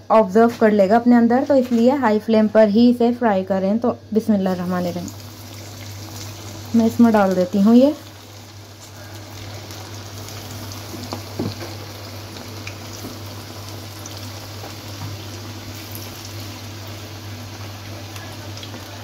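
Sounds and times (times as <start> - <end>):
chicken deep-frying sizzle: 4.2 - 19.0.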